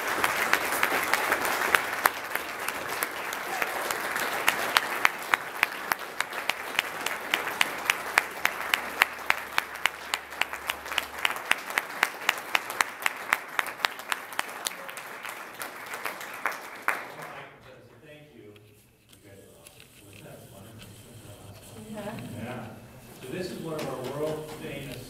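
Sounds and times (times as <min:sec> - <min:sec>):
nearby hands clapping steadily: 0:00.0 - 0:17.5, 0:23.7 - 0:25.0
audience applauding: 0:00.0 - 0:17.8.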